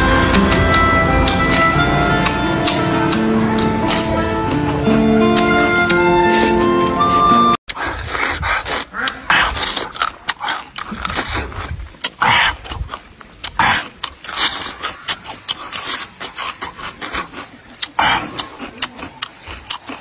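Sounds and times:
person crunching and chewing: 7.7s - 20.0s.

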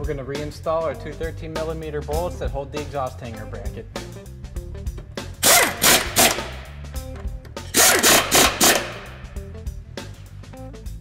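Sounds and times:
background music: 0.0s - 11.0s
ratchet wrench clicking: 5.4s - 6.6s, 7.7s - 9.1s.

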